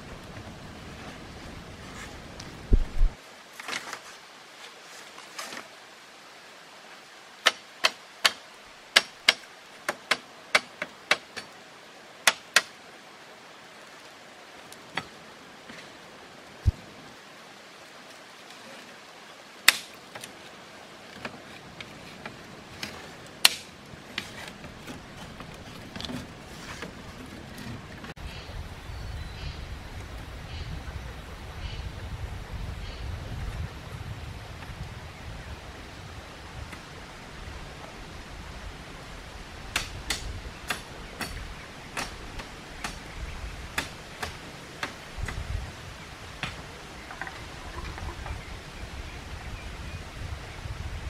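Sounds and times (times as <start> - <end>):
bamboo strips clacking: 7.4 - 11.6, 12.2 - 12.8, 19.6 - 20.4, 21.1 - 28.0.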